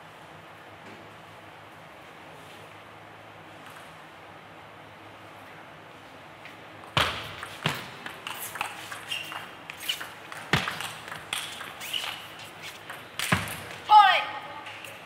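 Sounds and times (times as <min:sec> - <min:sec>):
table tennis ball clicking: 0:07.4 - 0:13.6.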